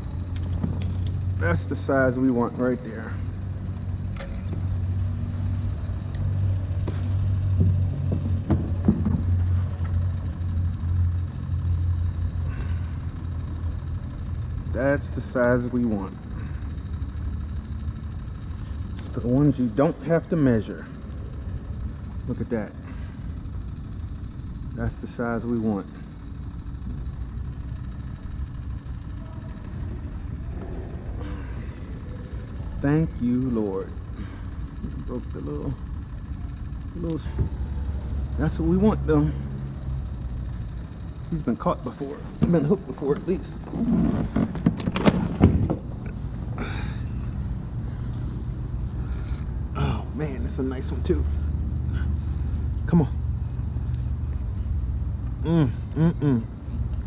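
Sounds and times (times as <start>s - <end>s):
distant car engines droning: 0.0s - 57.0s.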